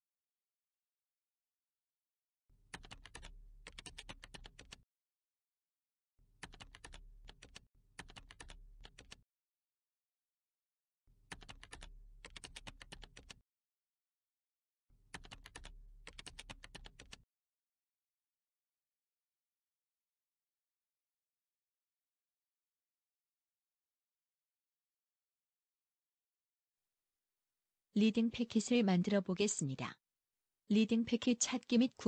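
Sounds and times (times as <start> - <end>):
computer keyboard typing: 2.7 - 4.8, 6.4 - 9.2, 11.3 - 13.4, 15.1 - 17.2.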